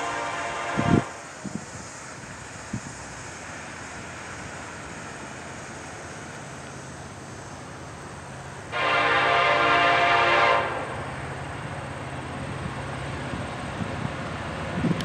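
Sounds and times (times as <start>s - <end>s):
train horn blast: 0.0s - 1.3s, 8.7s - 11.0s
locomotive engine drone: 0.0s - 15.0s.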